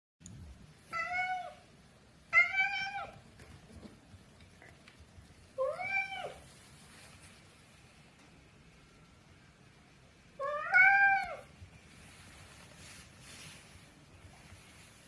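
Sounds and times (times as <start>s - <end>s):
cat meowing: 0.9s - 1.6s, 2.3s - 3.2s, 5.6s - 6.4s, 10.4s - 11.5s.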